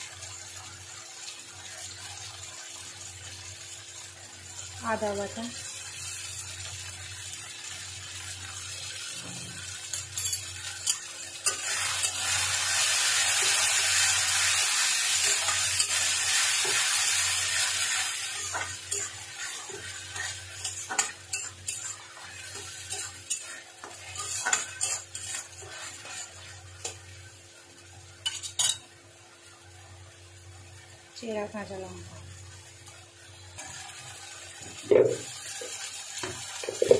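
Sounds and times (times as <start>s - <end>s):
paste sizzling in oil: 0.0s - 31.5s, 32.4s - 36.9s
spatula scraping pan: 9.2s - 27.0s.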